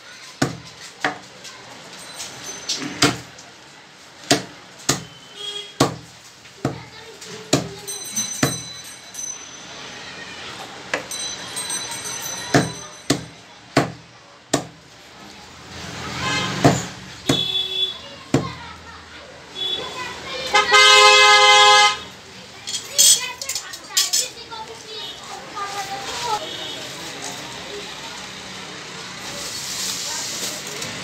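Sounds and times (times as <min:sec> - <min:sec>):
cleaver chopping on wooden block: 0:04.3 - 0:05.1, 0:05.8 - 0:06.0, 0:13.1 - 0:14.8.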